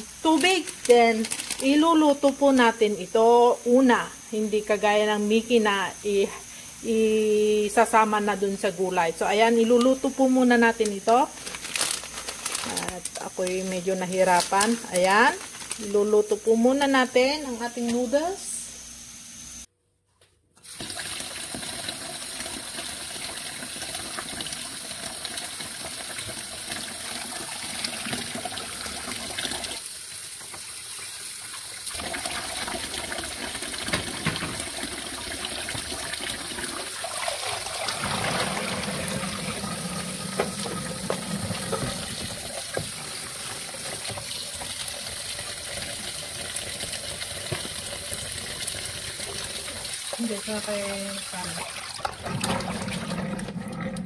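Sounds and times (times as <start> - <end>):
tap water splashing in sink: 32.0 - 39.5, 40.2 - 54.0.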